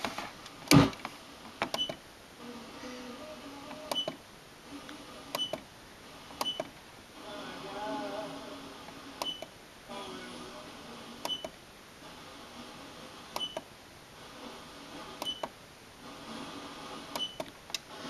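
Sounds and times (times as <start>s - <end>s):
faint radio station audio: 0.0s - 18.0s
radio static: 7.1s - 9.2s, 9.8s - 11.3s, 16.0s - 17.2s.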